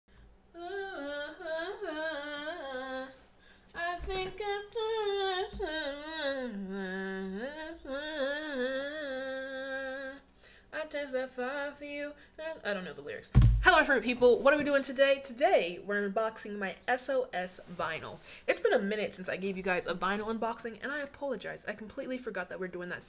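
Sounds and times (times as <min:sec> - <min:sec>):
woman singing and humming: 0:00.5 - 0:14.0.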